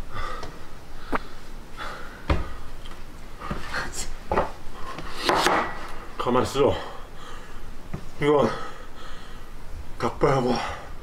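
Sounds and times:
person breathing hard: 0.0s - 2.8s, 6.7s - 7.8s, 8.4s - 9.7s.

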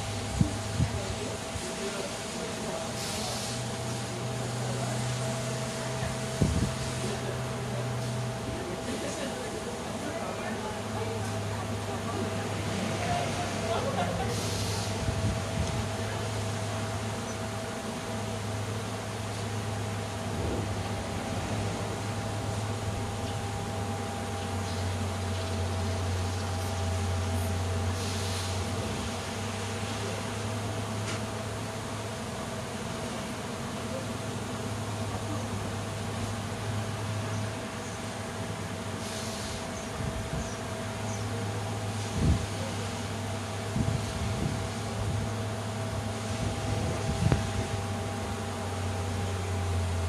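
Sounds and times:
brief rush of hiss: 2.2s - 4.0s, 14.3s - 15.1s, 27.9s - 29.2s, 39.0s - 39.8s.

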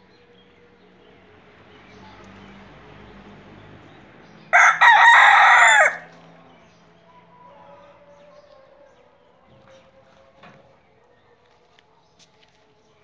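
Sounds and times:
rooster crowing: 4.5s - 6.1s.

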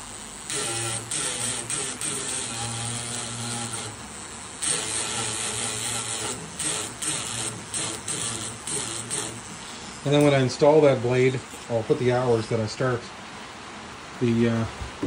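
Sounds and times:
engraving pen buzzing on metal: 0.0s - 10.5s.

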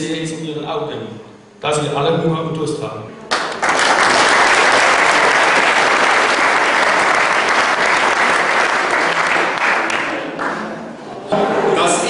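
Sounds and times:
audience applauding: 3.3s - 10.9s.

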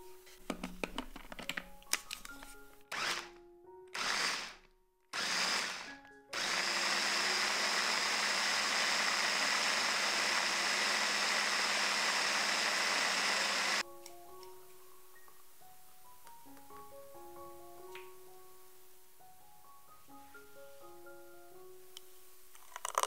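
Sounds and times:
blender motor running: 2.9s - 3.3s, 4.0s - 4.6s, 5.2s - 13.8s.

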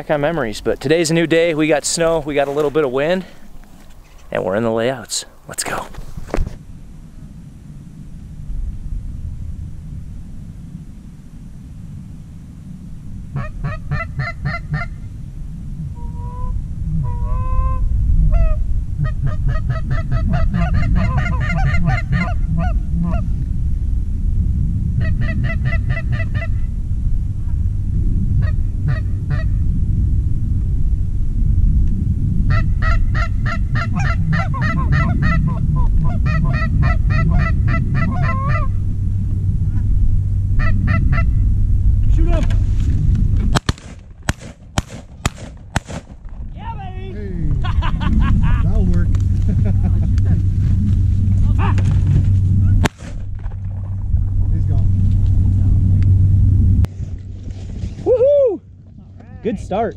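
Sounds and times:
wind rumble on microphone: 0.0s - 59.9s
goose honking: 13.4s - 15.0s, 19.1s - 23.3s, 32.5s - 38.8s
shotgun cracks: 43.5s - 46.2s, 52.8s - 53.4s.

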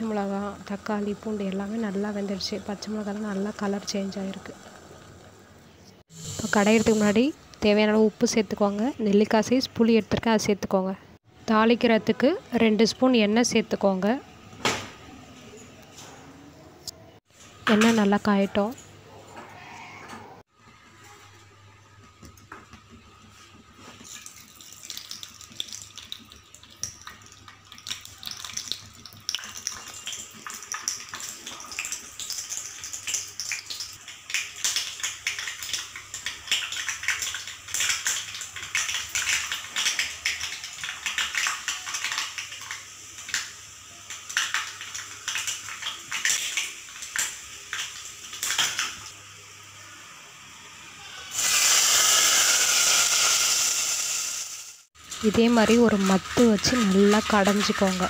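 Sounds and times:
oil sizzling in a pan: 0.0s - 9.6s, 21.9s - 58.0s.

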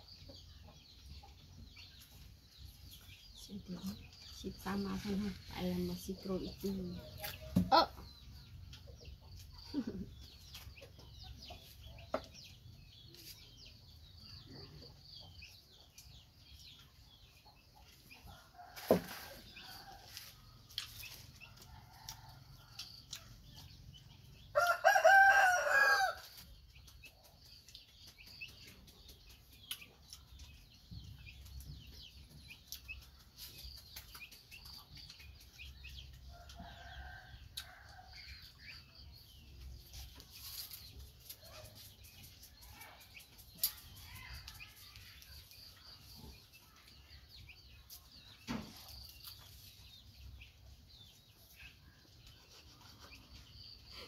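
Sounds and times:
rooster crowing: 24.6s - 26.2s.

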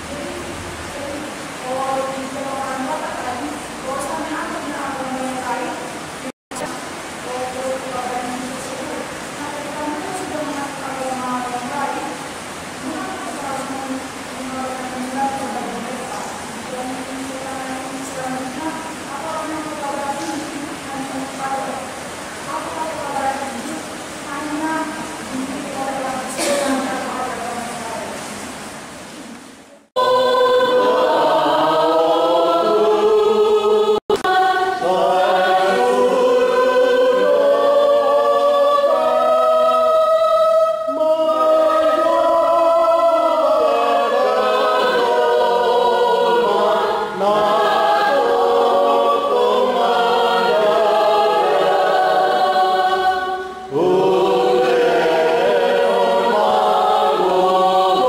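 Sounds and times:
choir singing a hymn: 30.0s - 58.0s.

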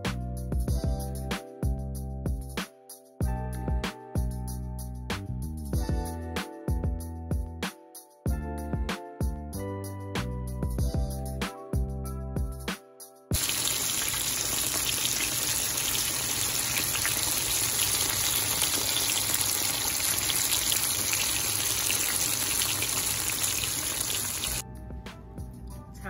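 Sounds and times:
background music: 0.0s - 13.6s, 24.0s - 26.0s
fish deep-frying in hot oil: 13.4s - 24.6s.

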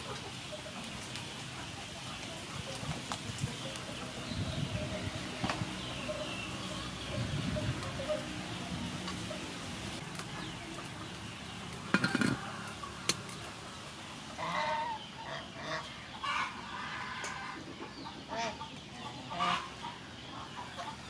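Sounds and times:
chickens clucking: 0.0s - 21.0s
metal lid clanking onto pot: 11.9s - 12.5s.

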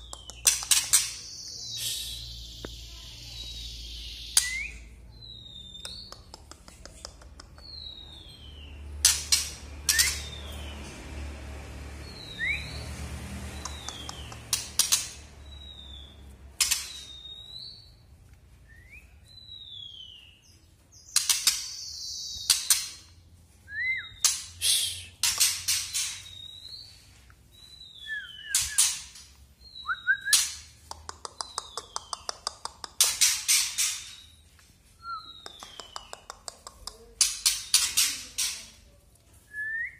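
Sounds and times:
bird clicking calls: 0.0s - 1.2s, 5.7s - 8.0s, 9.0s - 10.4s, 13.5s - 15.3s, 30.1s - 34.0s, 35.2s - 38.6s.

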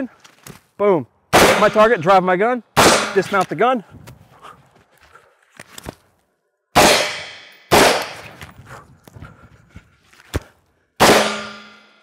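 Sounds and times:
rifle shots echoing: 1.3s - 1.9s, 2.8s - 3.4s, 6.8s - 8.3s, 11.0s - 11.9s.

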